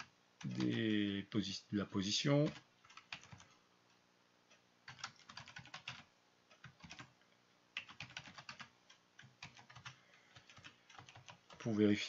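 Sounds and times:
typing on computer keyboard: 0:00.0 - 0:00.9, 0:02.4 - 0:03.6, 0:04.8 - 0:07.2, 0:07.8 - 0:11.7.

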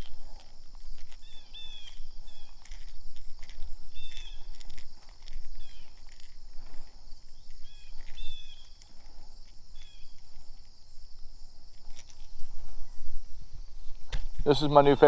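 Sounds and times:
high-pitched insect chorus: 0:00.0 - 0:15.0
short chirping calls: 0:01.2 - 0:02.7, 0:03.9 - 0:04.6, 0:05.5 - 0:06.2, 0:07.3 - 0:08.9, 0:09.7 - 0:10.2.

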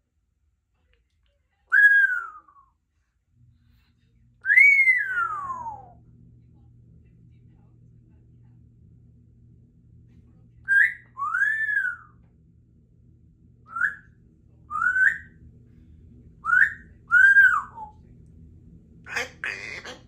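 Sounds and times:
parrot whistling: 0:04.4 - 0:05.9, 0:10.7 - 0:12.1, 0:13.7 - 0:14.1, 0:14.7 - 0:15.4, 0:16.4 - 0:18.0, 0:19.1 - 0:20.0.

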